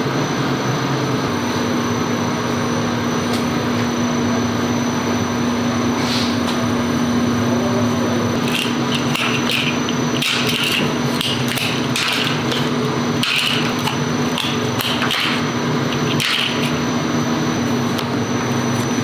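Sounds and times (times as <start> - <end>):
factory machinery hum: 0.0 - 19.0.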